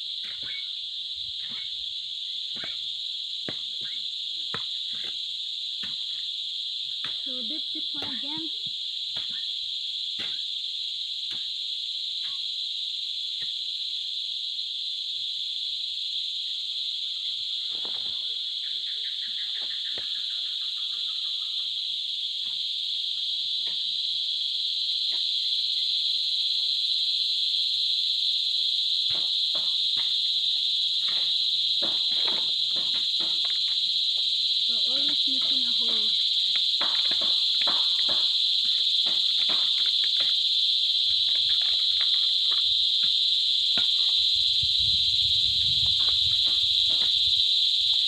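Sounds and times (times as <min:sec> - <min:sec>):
insect chorus drone: 0:00.0 - 0:48.0
taps and rustles in soil: 0:02.4 - 0:06.2, 0:06.8 - 0:10.6, 0:31.0 - 0:44.2, 0:45.7 - 0:48.0.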